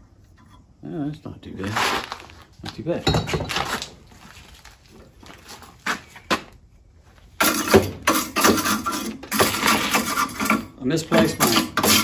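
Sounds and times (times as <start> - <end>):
metal tools clinking: 3.0 - 4.0
wire brush scraping steel: 7.4 - 12.0.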